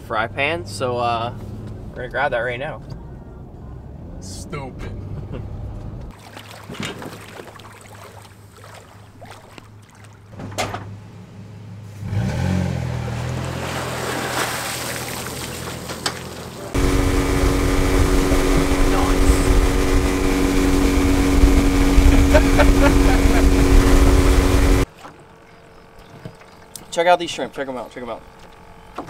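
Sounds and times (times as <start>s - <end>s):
road noise inside a car: 0.0s - 6.1s
wind and water rushing: 13.1s - 25.2s
outboard motor running at speed: 13.1s - 29.0s
motor idling: 16.7s - 26.9s.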